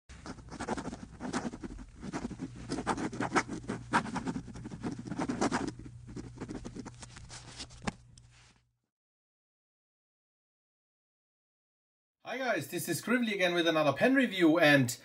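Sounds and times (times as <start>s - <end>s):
pen scratching on paper: 0.1s - 7.7s.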